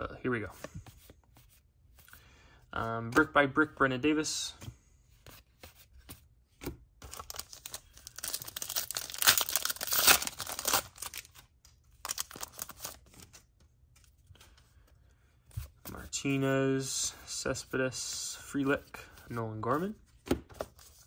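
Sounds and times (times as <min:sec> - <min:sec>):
foil wrapper tearing and crinkling: 0:07.1 - 0:11.3.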